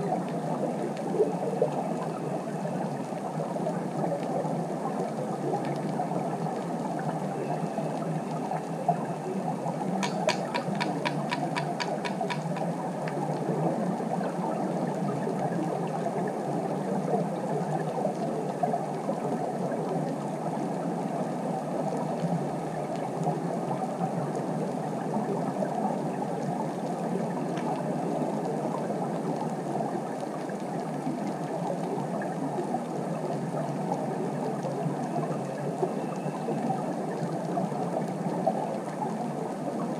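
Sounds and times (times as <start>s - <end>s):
steady underwater noise: 0.0s - 39.9s
sharp clicks: 10.0s - 12.7s.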